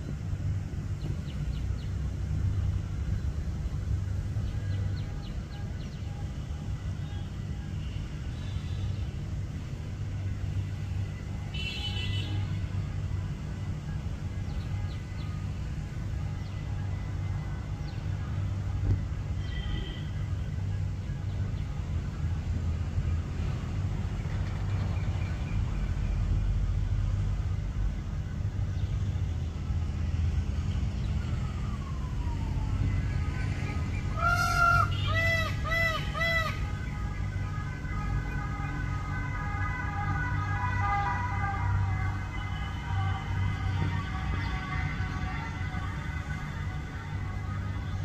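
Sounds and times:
low outdoor rumble: 0:00.0 - 0:48.0.

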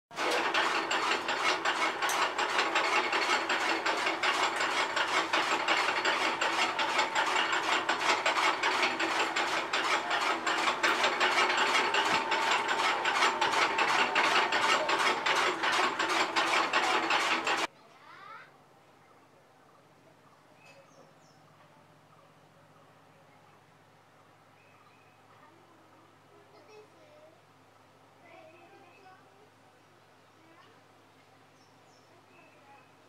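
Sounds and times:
chaff cutter clattering: 0:00.1 - 0:17.7.

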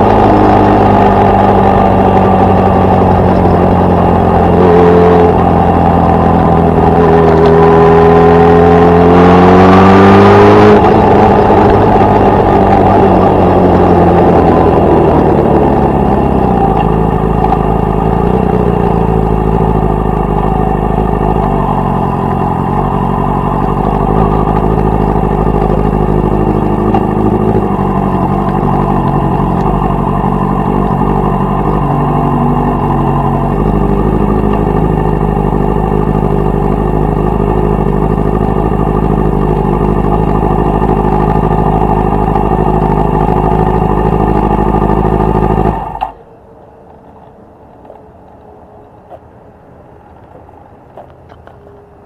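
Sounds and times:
motorcycle engine idling: 0:00.0 - 0:07.5, 0:10.8 - 0:46.7
cooling engine ticks: 0:10.8 - 0:49.3.

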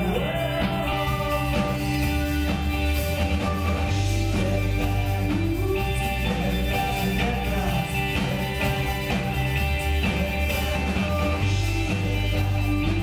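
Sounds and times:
bass guitar: 0:00.0 - 0:13.0
steady drum beat: 0:00.0 - 0:13.0
strummed guitar: 0:00.0 - 0:13.0.

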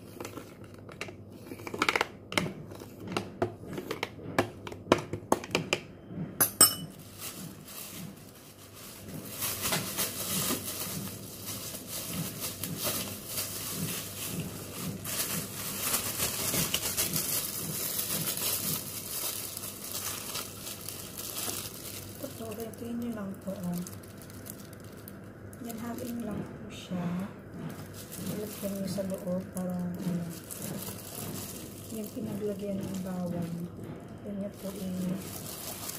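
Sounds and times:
plastic bag crinkling: 0:06.9 - 0:26.6, 0:27.6 - 0:35.9.

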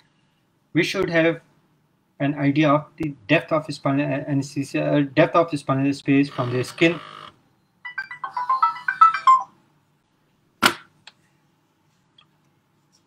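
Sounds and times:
electronic phone tune beeps: 0:07.8 - 0:09.5.

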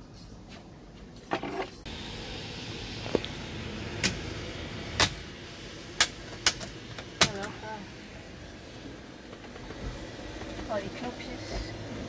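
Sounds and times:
steady hiss: 0:01.8 - 0:09.3.

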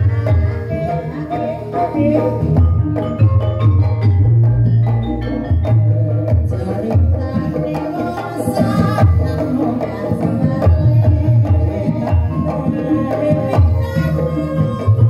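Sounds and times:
woman singing: 0:00.0 - 0:03.1, 0:05.7 - 0:15.0
metallic gamelan tones: 0:00.0 - 0:15.0.

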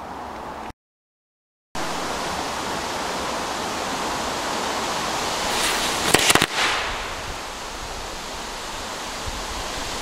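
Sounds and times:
fizzing hiss of burning fuse: 0:04.2 - 0:10.0.

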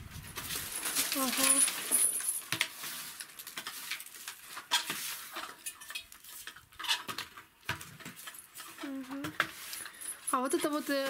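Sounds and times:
brush scraping a ceiling: 0:02.7 - 0:07.2, 0:08.0 - 0:10.0.

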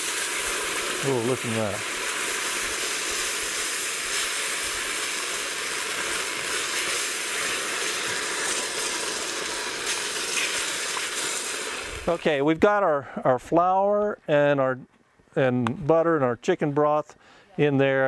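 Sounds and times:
broth pouring: 0:00.0 - 0:12.4
sizzling hiss: 0:00.0 - 0:12.5.

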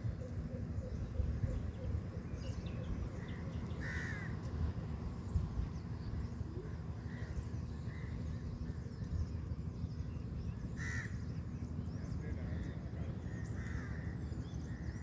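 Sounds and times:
steady low rumble: 0:00.0 - 0:15.0
crow cawing: 0:03.8 - 0:04.4, 0:10.8 - 0:11.2, 0:13.3 - 0:15.0.

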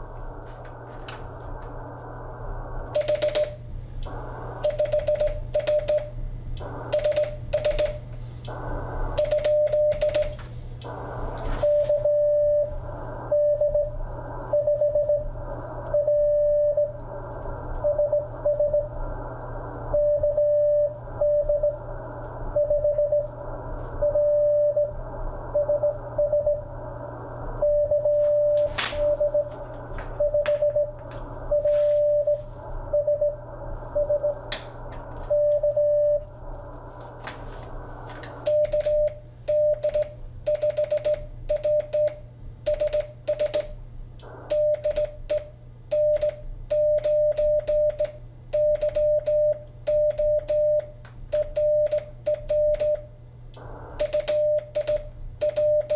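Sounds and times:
receiver hiss: 0:00.0 - 0:42.6, 0:43.8 - 0:55.9
morse code beeps: 0:02.9 - 0:03.6, 0:04.6 - 0:06.1, 0:06.9 - 0:08.0, 0:09.2 - 0:10.4, 0:11.6 - 0:12.7, 0:13.3 - 0:15.3, 0:15.9 - 0:17.0, 0:17.8 - 0:19.0, 0:19.9 - 0:21.8, 0:22.5 - 0:23.3, 0:24.0 - 0:26.6, 0:27.6 - 0:34.5, 0:35.3 - 0:36.3, 0:38.4 - 0:43.7, 0:44.5 - 0:53.1, 0:54.0 - 0:55.9.

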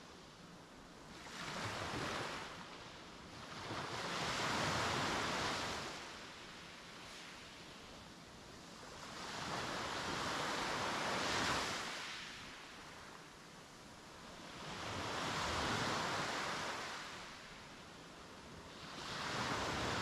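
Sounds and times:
waves breaking on a beach: 0:00.0 - 0:20.0.

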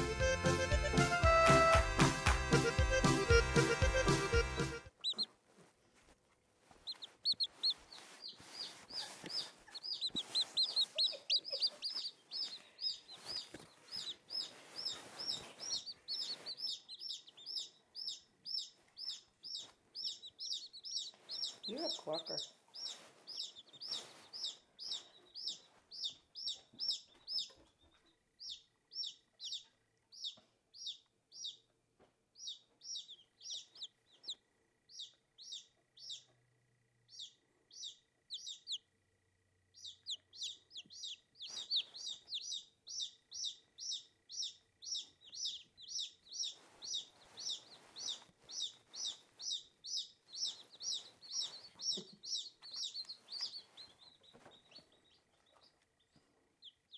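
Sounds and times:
chicks peeping: 0:00.0 - 0:39.0, 0:39.6 - 0:56.9.

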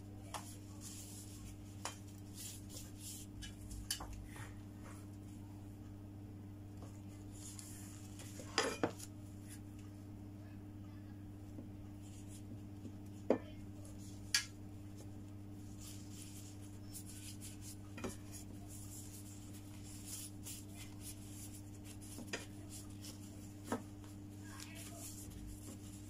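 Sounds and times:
steady low hum: 0:00.0 - 0:26.0
rustling of hands rolling wrapper: 0:15.0 - 0:26.0.

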